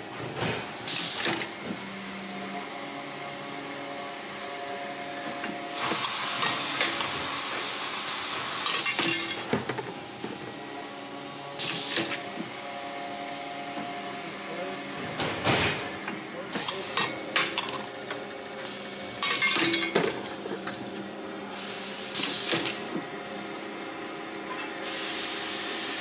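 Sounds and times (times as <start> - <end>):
machine high whine and hum: 0.0 - 26.0.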